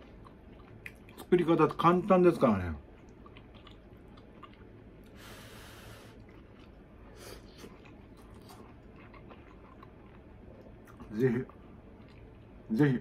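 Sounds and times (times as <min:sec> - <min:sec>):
person breathing sharply through nose: 0:05.2 - 0:06.2.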